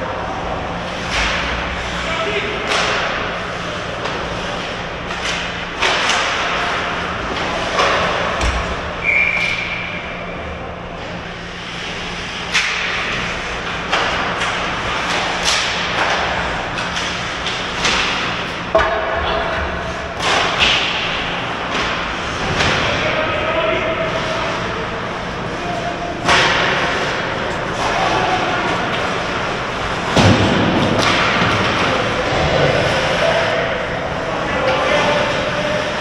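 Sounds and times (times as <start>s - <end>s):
hockey sticks and puck clacking: 0.8s - 9.9s, 11.6s - 24.6s, 25.4s - 36.0s
referee's whistle: 9.0s - 10.0s.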